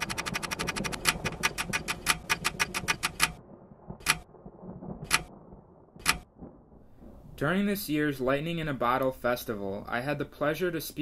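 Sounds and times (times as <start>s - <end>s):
clock ticking: 0.0s - 3.4s, 4.0s - 4.3s, 5.0s - 5.4s, 6.0s - 6.3s
low rumble: 0.0s - 7.6s.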